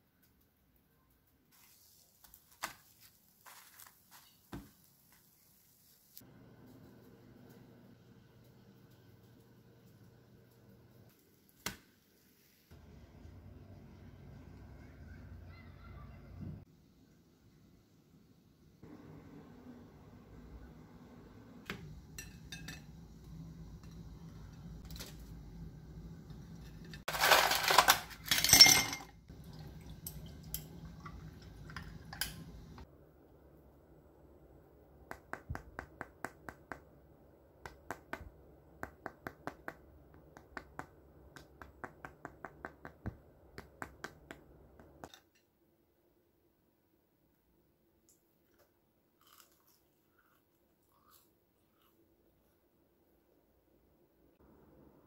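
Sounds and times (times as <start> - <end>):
crackly pastry rustle: 1.5 - 5.6.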